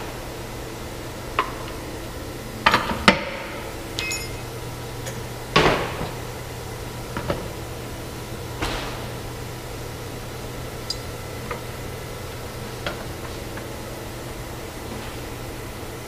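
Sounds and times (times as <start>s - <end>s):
steady low machine hum: 0.0s - 16.0s
metal tools knocking and clinking: 4.0s - 4.5s.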